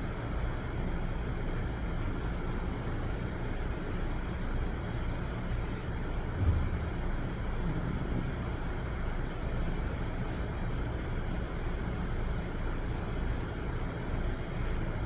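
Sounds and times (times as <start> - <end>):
low background rumble: 0.0 - 15.0
soft low thump: 6.3 - 7.9.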